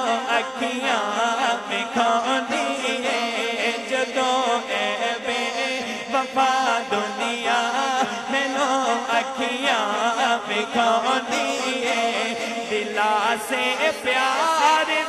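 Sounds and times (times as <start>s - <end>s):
man chanting melodically: 0.0s - 15.0s.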